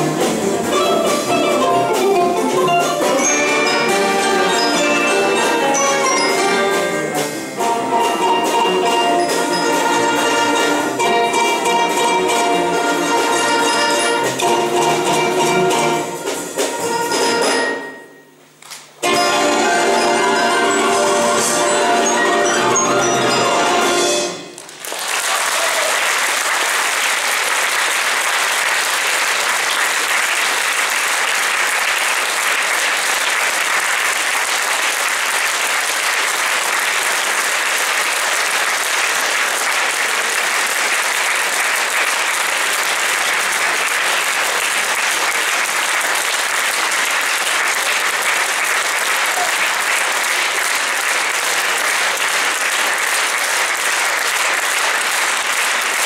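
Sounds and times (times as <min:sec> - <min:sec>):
audience applause: 0:24.5 - 0:56.0.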